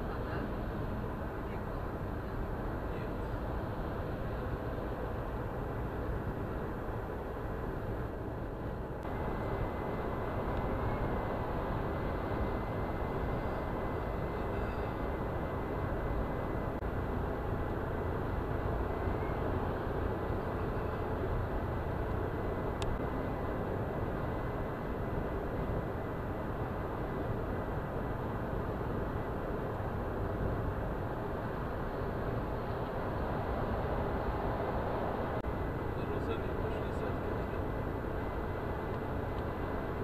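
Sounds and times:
faint thin high tone: 14.4s - 15.0s.

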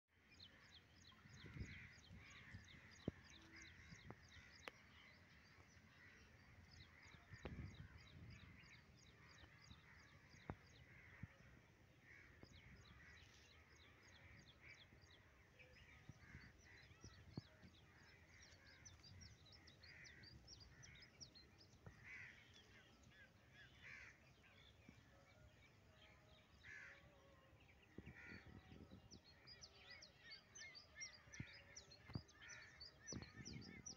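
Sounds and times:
crows cawing: 26.6s - 27.0s.

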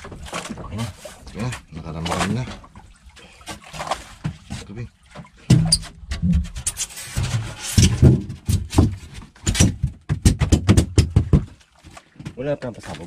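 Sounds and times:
knocks and thumps: 3.5s - 13.0s.

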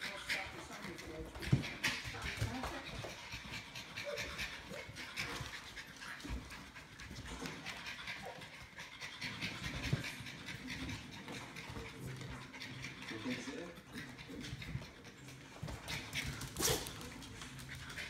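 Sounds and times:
dogs panting fast: 0.0s - 18.0s.

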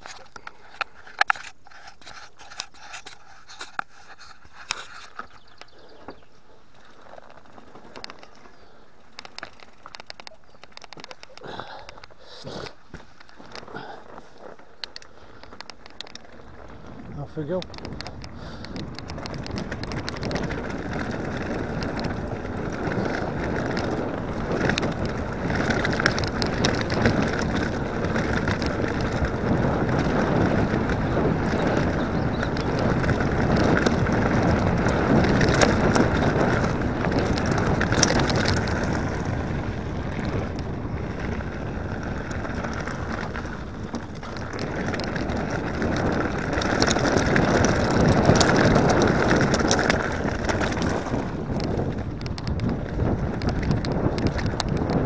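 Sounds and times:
bike tyre rumble: 0.0s - 55.0s
wind rushing over microphone: 15.9s - 55.0s.

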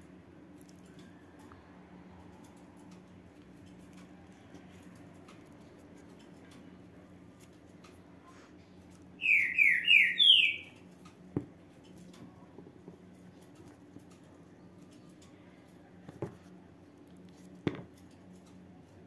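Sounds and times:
bird chirping: 9.2s - 10.8s.

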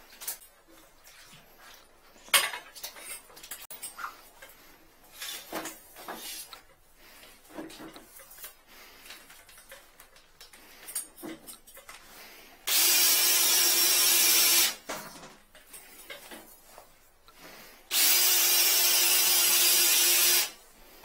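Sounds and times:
drill motor running: 12.7s - 14.8s, 17.9s - 20.6s.

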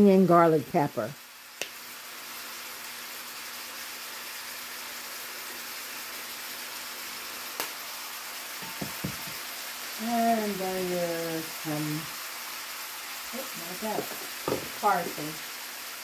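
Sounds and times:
food sizzling in a skillet: 0.0s - 16.0s
soft knocks: 8.6s - 9.4s.

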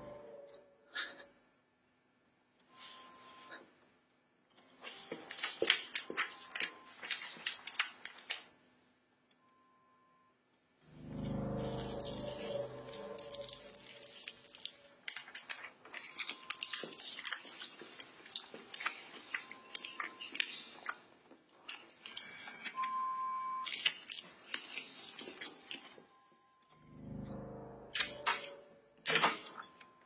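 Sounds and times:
crunching and crackling clicks: 11.3s - 22.9s, 23.6s - 26.8s
short steady beep: 22.7s - 23.7s.

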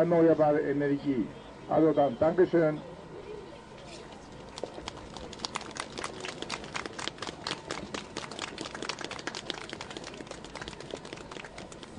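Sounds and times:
small crowd applauding: 4.5s - 11.9s.

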